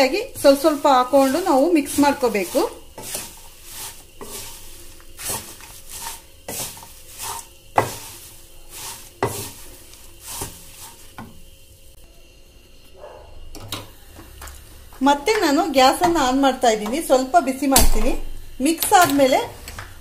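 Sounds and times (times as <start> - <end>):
wooden spatula scraping dry flakes: 0.0 - 12.0.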